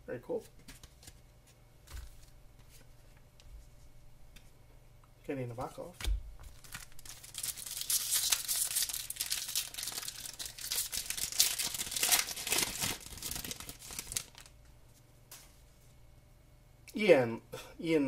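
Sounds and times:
foil wrapper crinkling and tearing: 6.5s - 14.6s.

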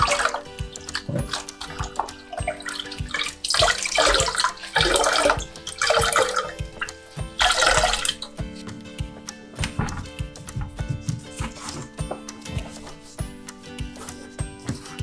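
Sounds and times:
water splashing: 0.0s - 8.4s
background music with steady beat: 0.0s - 15.0s.

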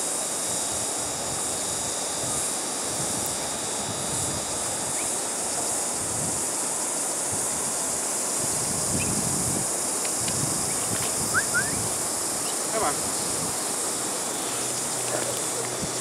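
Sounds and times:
high insect hum: 0.0s - 16.0s
wind buffeting microphone: 0.6s - 6.5s, 7.3s - 14.0s, 15.2s - 16.0s
short rising chirps: 11.2s - 12.6s.

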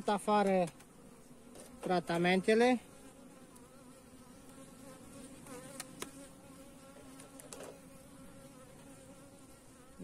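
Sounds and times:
honeybees buzzing: 0.0s - 10.0s
hive tool clicks: 5.5s - 6.2s, 7.1s - 7.8s.

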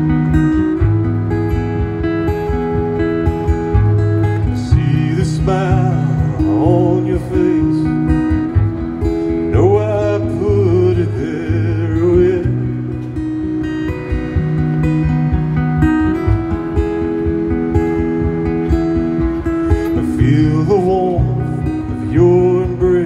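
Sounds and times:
acoustic guitar strumming: 0.0s - 23.0s
man singing: 4.4s - 8.6s, 9.4s - 13.1s, 19.8s - 23.0s.

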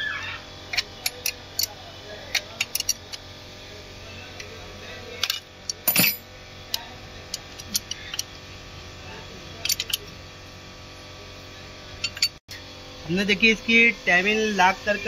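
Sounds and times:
metal tools clinking on metal: 5.2s - 6.2s.

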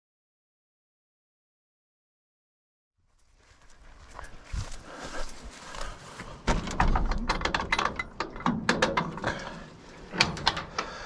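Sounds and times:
shed door clicks and rattles: 6.4s - 9.5s, 10.1s - 11.0s.

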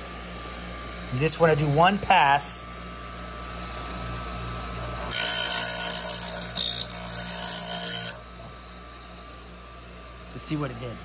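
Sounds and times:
grinder motor humming: 0.0s - 11.0s
metal grinding with harsh hiss: 5.1s - 8.2s.

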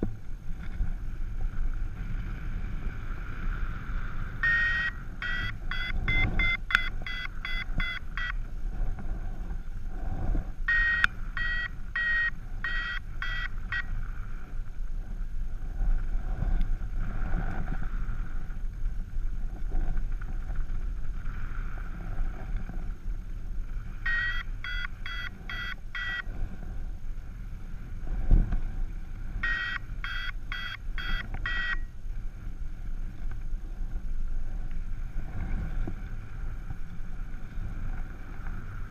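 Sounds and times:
wind rushing over microphone: 0.0s - 38.9s
quick high beeps: 4.4s - 8.4s, 10.7s - 13.9s, 24.1s - 26.3s, 29.4s - 31.9s.

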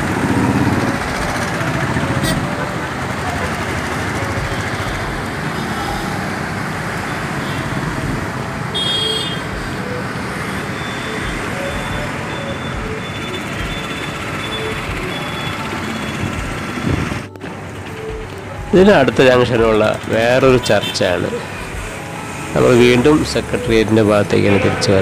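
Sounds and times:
street traffic passing: 0.0s - 25.0s
short high horn toot: 8.7s - 16.4s.

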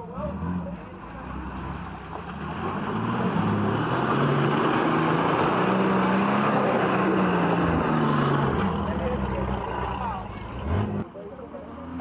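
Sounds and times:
truck engine working under load: 0.0s - 12.0s.

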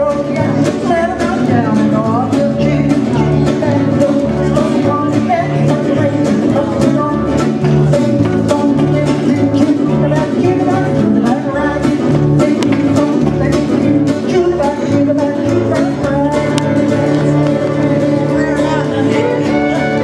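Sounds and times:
alternating bass line: 0.0s - 20.0s
country band playing guitars: 0.0s - 20.0s
woman singing: 0.0s - 20.0s.

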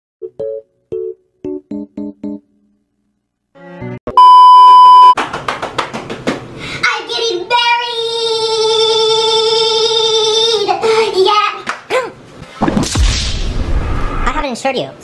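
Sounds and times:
electronic beep: 4.1s - 5.2s.

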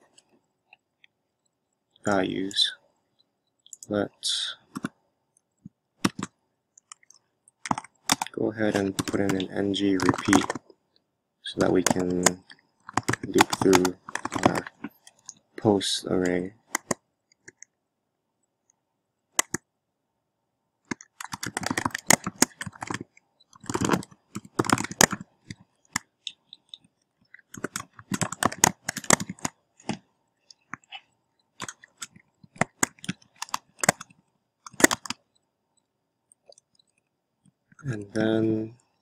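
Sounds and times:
computer keyboard typing: 4.7s - 5.0s, 6.0s - 10.6s, 11.6s - 15.4s, 16.1s - 17.7s, 19.4s - 19.6s, 20.9s - 35.4s.

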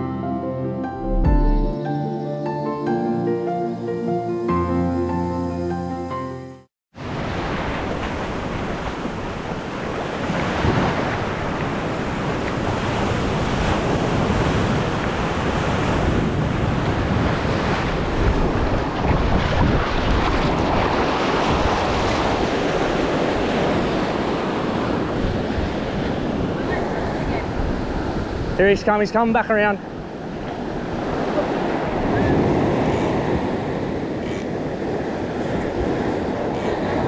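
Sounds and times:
surf washing up beach: 7.0s - 37.0s
wind buffeting microphone: 7.2s - 28.6s, 29.9s - 37.0s.

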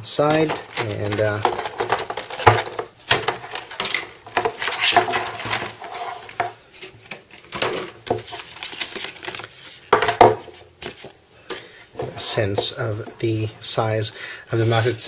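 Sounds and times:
plastic packaging crackling: 0.2s - 5.8s.

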